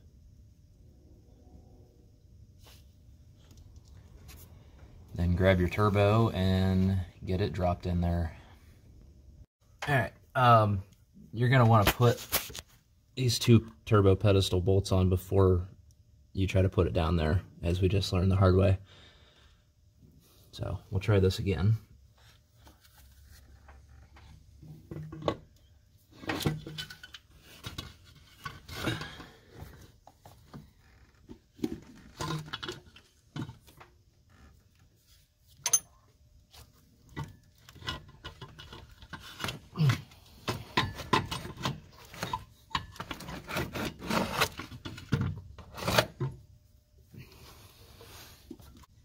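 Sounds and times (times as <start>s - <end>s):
sharp metal clink: 35.6s - 36.0s.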